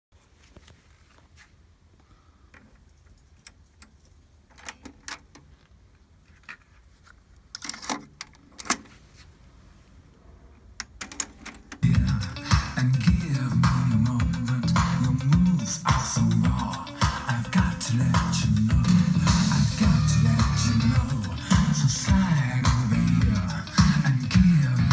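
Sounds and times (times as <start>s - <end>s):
guitar music from tape: 11.8s - 24.9s.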